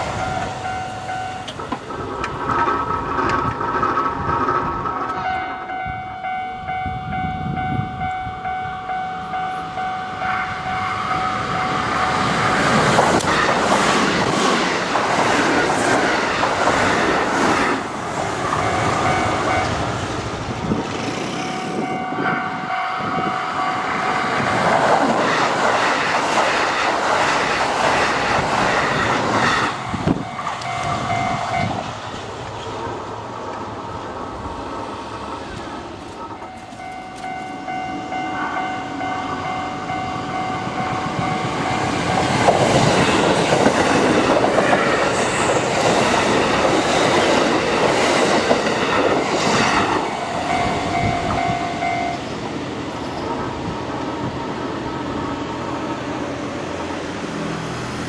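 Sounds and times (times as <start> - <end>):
crossing signal warning tone: 0.0 - 1.6, 5.1 - 12.6, 29.8 - 31.8, 36.2 - 42.6, 50.0 - 52.4
train wheels clattering over rail joints: 1.4 - 5.2, 41.6 - 51.4.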